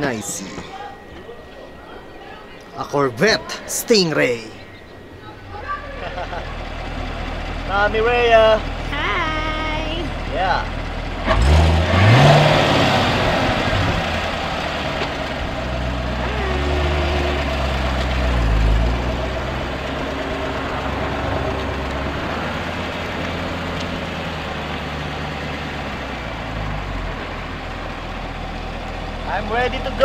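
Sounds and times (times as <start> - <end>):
car engine revving: 9.8 - 30.0.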